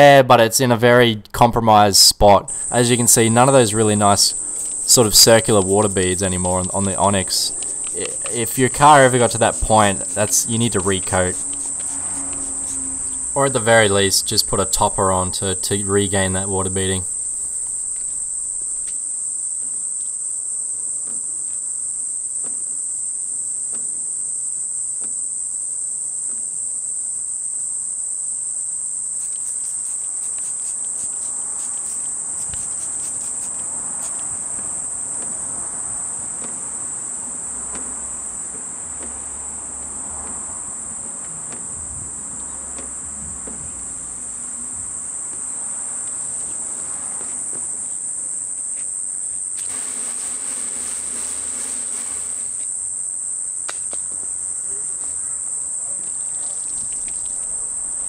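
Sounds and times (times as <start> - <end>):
spray bottle spraying: 2.5 - 14.3, 29.2 - 34.3, 49.6 - 52.7
high-pitched insect drone: 2.5 - 58.0.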